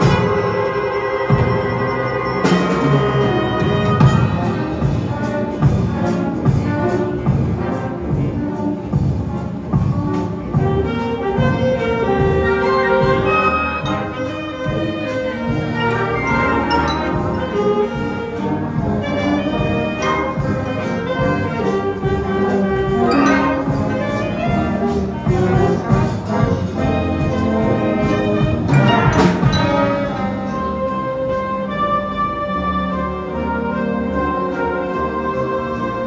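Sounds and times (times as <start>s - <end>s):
loud accented band hits: 0.0s - 8.3s, 11.4s - 30.9s
concert band playing: 0.0s - 36.0s.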